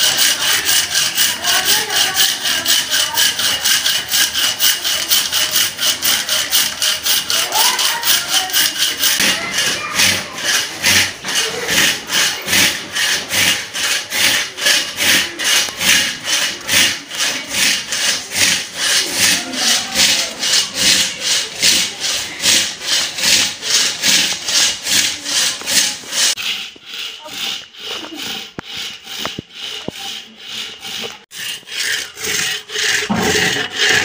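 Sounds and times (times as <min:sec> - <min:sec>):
hand saw cutting a log: 0:00.0 - 0:34.0.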